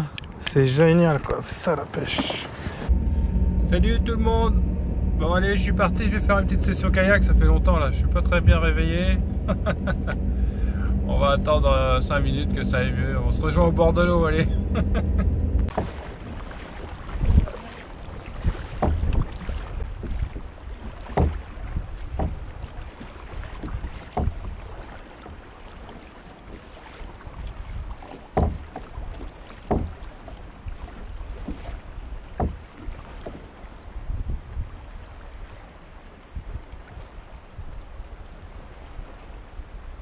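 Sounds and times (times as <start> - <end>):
paddle strokes splashing: 2.0 - 3.0, 15.6 - 40.0.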